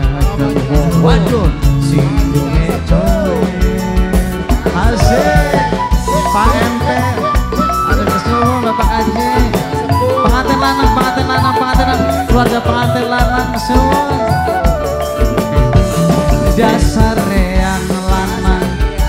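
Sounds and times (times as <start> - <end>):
drums and shaken percussion: 0.0 - 19.0
bamboo flute melody: 4.8 - 17.8.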